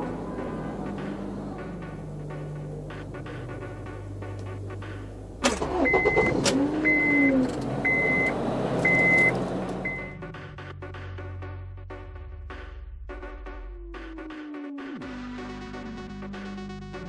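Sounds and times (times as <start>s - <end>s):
car engine: 0.0s - 17.0s
car warning chime beeping: 5.6s - 10.3s.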